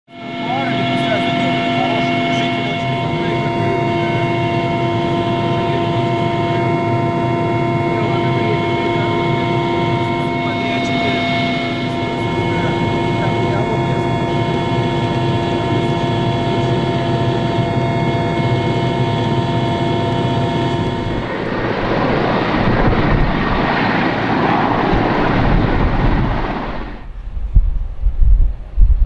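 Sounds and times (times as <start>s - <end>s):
helicopter engine and gearbox whine: 0.1s - 27.2s
even rushing noise: 20.3s - 29.0s
low uneven rumble: 20.3s - 29.0s.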